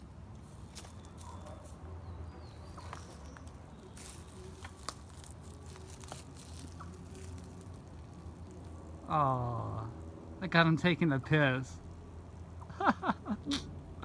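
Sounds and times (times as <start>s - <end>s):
low steady rumble: 0.0s - 14.0s
footsteps on twigs and forest litter: 0.4s - 1.8s, 2.4s - 8.7s.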